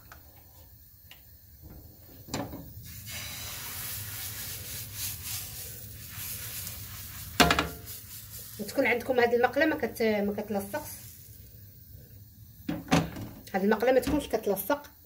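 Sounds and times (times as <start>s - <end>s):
batter sizzling on a hot pan: 1.2s - 15.0s
pan knocking on burner grate: 7.4s - 7.9s.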